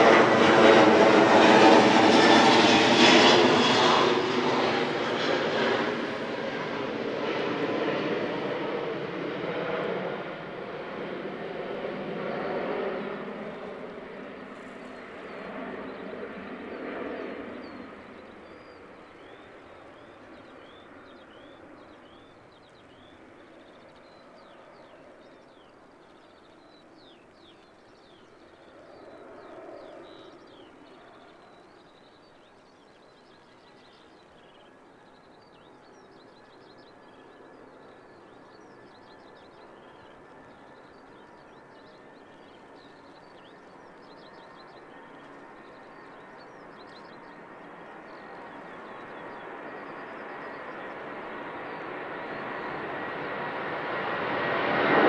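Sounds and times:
distant jet engine roar: 0.0s - 55.0s
small birds chirping: 14.5s - 53.6s.

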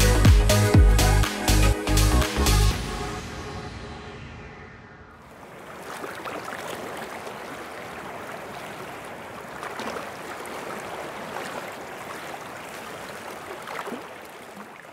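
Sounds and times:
surf washing over sand: 5.2s - 14.9s
small water splashes: 5.4s - 14.9s.

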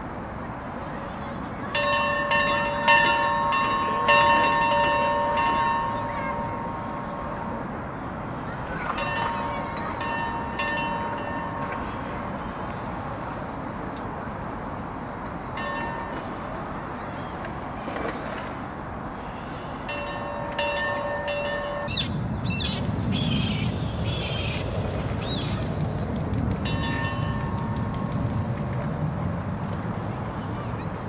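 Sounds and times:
steady rushing background: 22.8s - 30.3s.

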